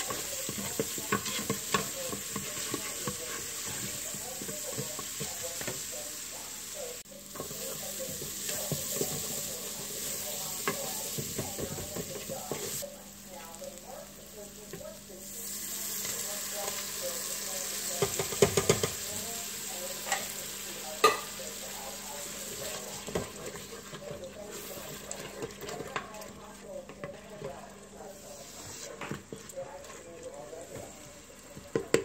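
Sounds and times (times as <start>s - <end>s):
wooden spoon scraping a pot: 0.0s - 5.8s, 22.2s - 26.1s, 26.8s - 31.7s
onion sizzling in hot oil: 0.0s - 25.7s.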